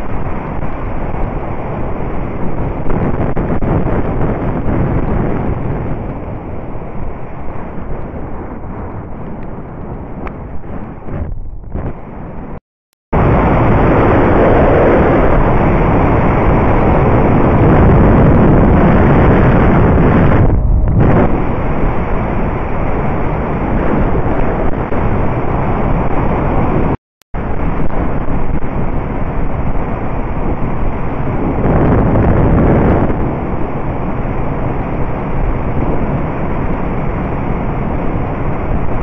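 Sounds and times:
ride rumble: 0:00.0 - 0:12.6, 0:13.2 - 0:26.8
wind buffeting microphone: 0:00.0 - 0:12.6, 0:13.2 - 0:39.0.

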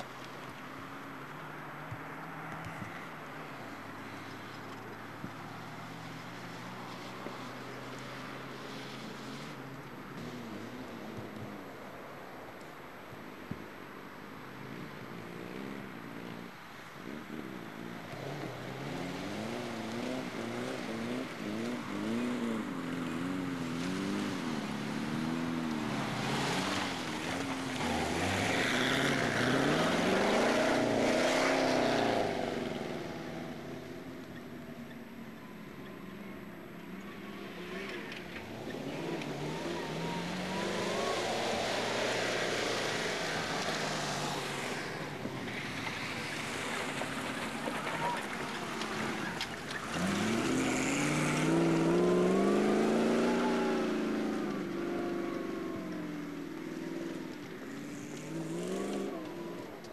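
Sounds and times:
racing engines revving past: 0:14.6 - 0:59.9.

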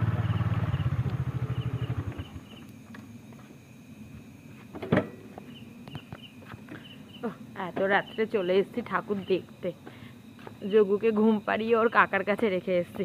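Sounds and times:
vehicle engine running: 0:00.0 - 0:02.6.

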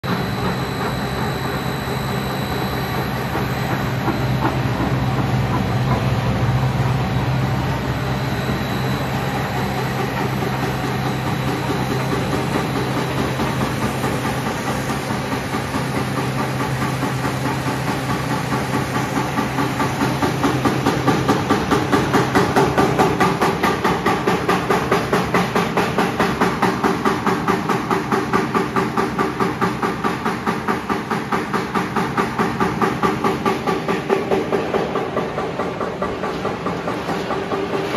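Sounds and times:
extruder machine with low motor hum: 0:00.0 - 0:37.9.

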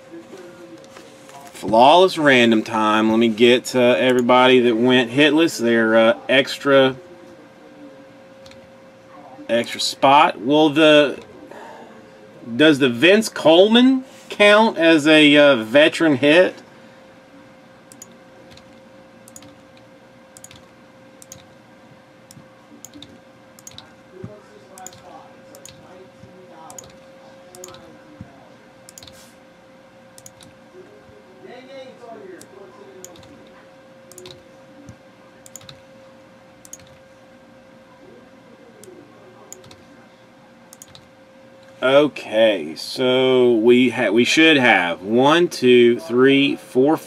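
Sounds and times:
faint steady hum: 0:00.0 - 0:47.0
keyboard and mouse clicks: 0:17.9 - 0:19.6, 0:20.4 - 0:21.5, 0:22.3 - 0:23.9, 0:24.8 - 0:25.8, 0:26.7 - 0:27.8, 0:28.9 - 0:29.2, 0:30.2 - 0:30.5, 0:33.0 - 0:33.4, 0:34.1 - 0:34.4, 0:35.4 - 0:35.8, 0:36.6 - 0:37.0, 0:39.5 - 0:39.8, 0:40.7 - 0:41.1.

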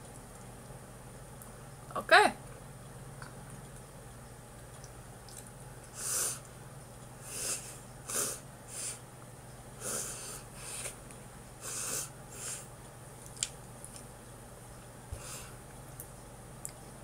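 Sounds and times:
person breathing noisily through mouth: 0:15.2 - 0:15.6.

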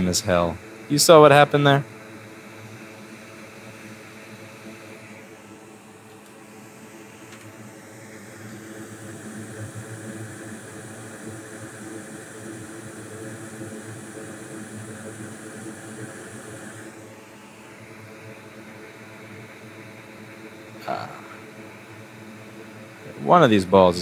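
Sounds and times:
electric blower rushing air: 0:00.0 - 0:18.1.

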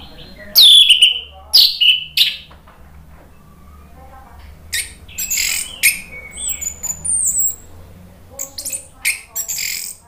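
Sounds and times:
harsh squawking bird notes: 0:00.0 - 0:02.5, 0:04.6 - 0:07.7, 0:08.4 - 0:10.0
bird singing: 0:00.0 - 0:02.6, 0:03.2 - 0:10.0.

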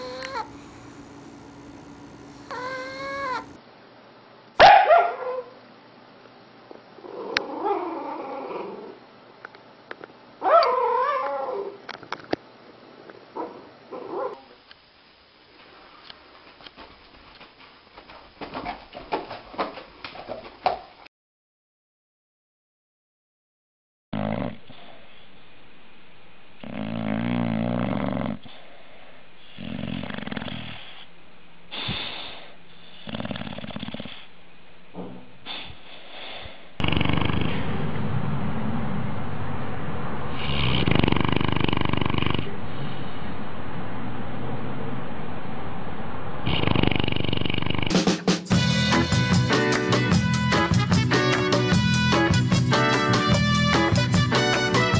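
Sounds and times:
dog snoring: 0:00.0 - 0:00.5, 0:02.5 - 0:03.6, 0:24.2 - 0:25.0, 0:26.6 - 0:28.7, 0:29.4 - 0:31.1, 0:31.7 - 0:34.3, 0:35.5 - 0:37.8, 0:40.3 - 0:43.0, 0:46.4 - 0:48.0
puppy whining: 0:00.0 - 0:00.6, 0:02.5 - 0:03.6, 0:07.0 - 0:09.0, 0:10.4 - 0:11.8.

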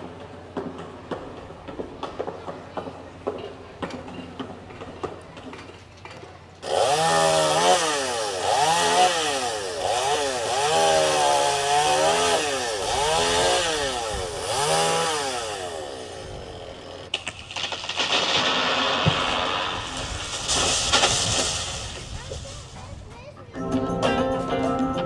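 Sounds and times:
hiss: 0:18.0 - 0:22.9.

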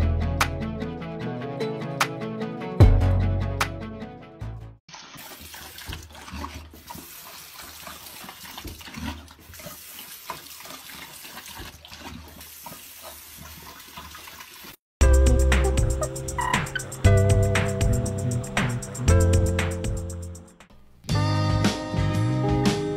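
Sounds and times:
dog lapping water: 0:04.9 - 0:14.8.

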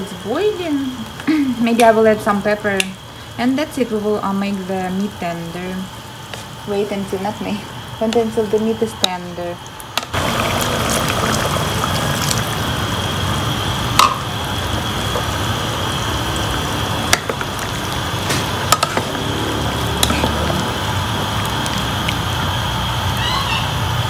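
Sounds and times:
pot simmering: 0:00.0 - 0:24.0
water pouring into pot: 0:10.1 - 0:23.1.

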